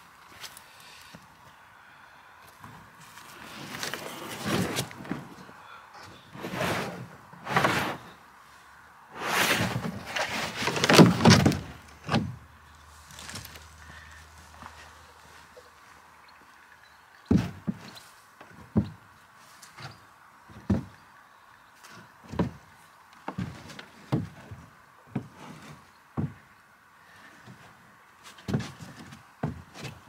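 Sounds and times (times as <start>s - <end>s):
boots thumping in plastic pond shell: 9.7s - 12.4s.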